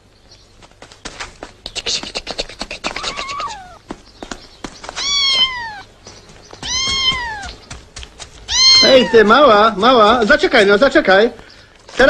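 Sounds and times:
kitten meowing: 2.9 - 3.8, 5.0 - 5.9, 6.6 - 7.6, 8.5 - 9.5.

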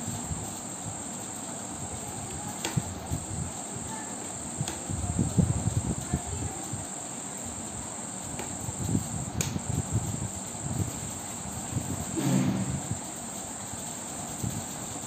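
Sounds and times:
steady high-pitched tone: 12.2 - 13.3.

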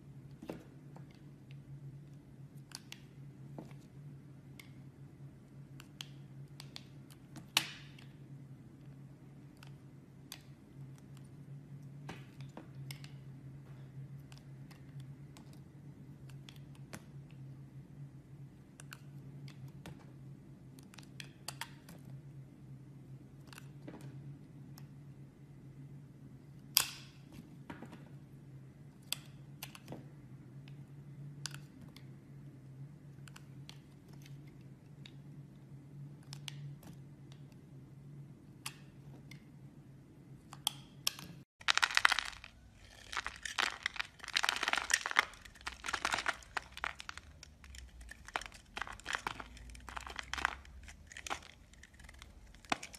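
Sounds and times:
low steady hum: 0.0 - 52.9
knife crunching hard soap: 41.7 - 52.9.

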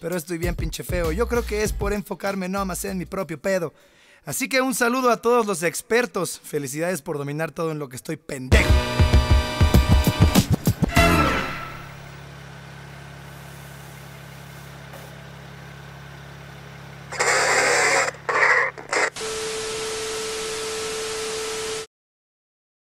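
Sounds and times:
harsh stuttering glitch noise: 17.1 - 21.9
static hiss: 17.1 - 21.9.

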